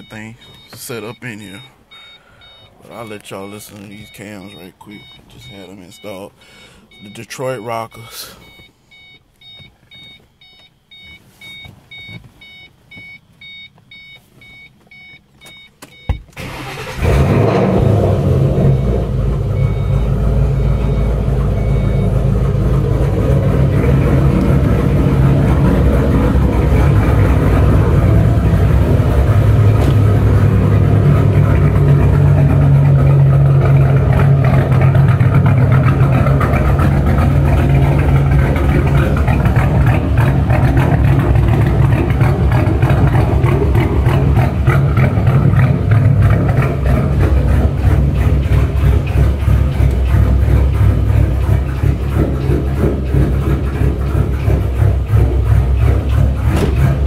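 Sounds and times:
dashboard warning chime beeping: 0.0s - 17.0s, 18.7s - 23.1s
car engine cranking and idling: 0.0s - 57.0s.

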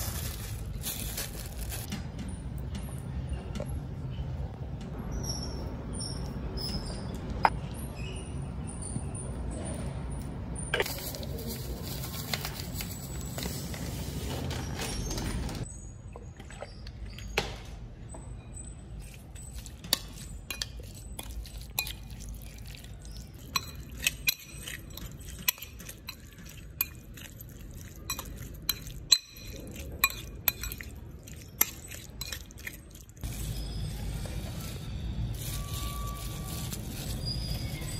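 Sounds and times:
utensil scraping glass bowl: 19.0s - 34.1s
wet squelching of meat: 20.9s - 33.2s.

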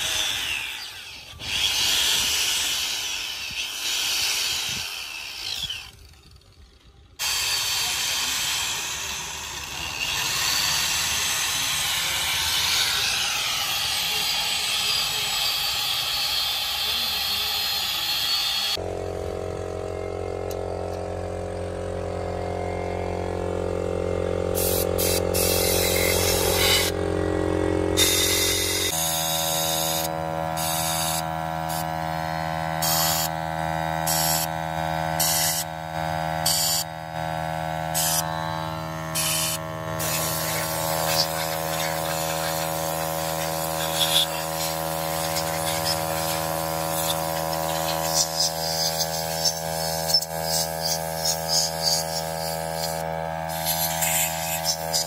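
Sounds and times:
machine buzzing hum: 18.3s - 55.0s
short bursts of hiss: 43.3s - 55.0s.

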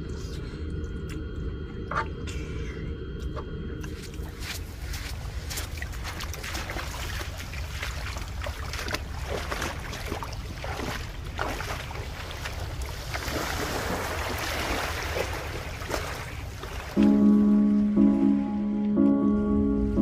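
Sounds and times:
splashing through water: 4.8s - 17.1s.

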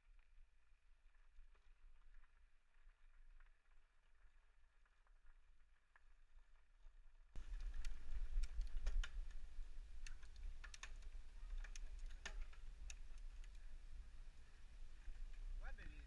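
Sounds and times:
bike clicks and rattles: 7.4s - 16.0s
low wind rumble: 7.4s - 16.0s.

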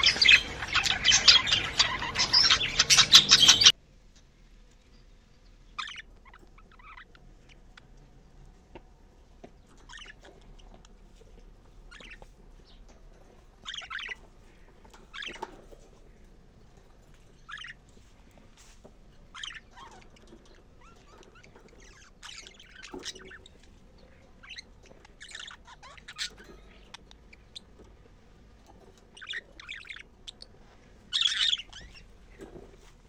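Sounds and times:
budgerigars chattering: 0.0s - 3.7s, 9.8s - 10.2s, 13.6s - 15.6s, 17.4s - 17.8s, 19.3s - 27.7s, 29.1s - 32.1s.

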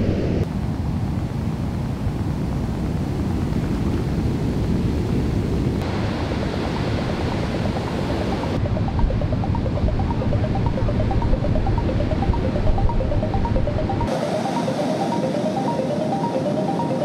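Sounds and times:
ocean surf breaking: 5.8s - 17.0s.

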